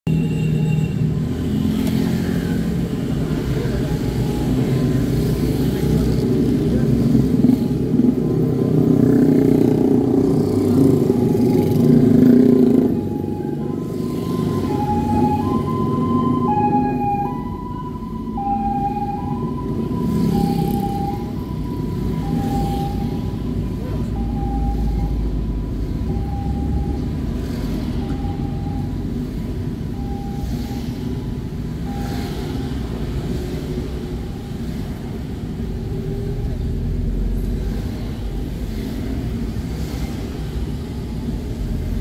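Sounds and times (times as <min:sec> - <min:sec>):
low traffic rumble: 0:00.1 - 0:42.0
two-tone siren: 0:11.0 - 0:33.2.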